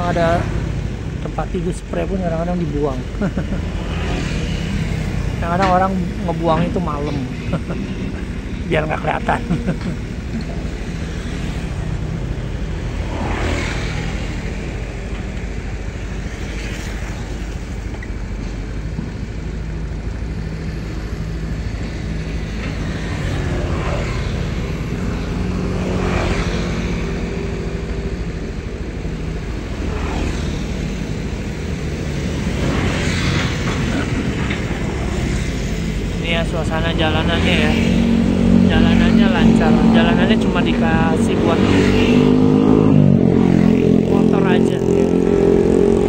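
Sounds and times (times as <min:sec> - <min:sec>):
diesel excavator engines running: 0:00.0 - 0:46.0.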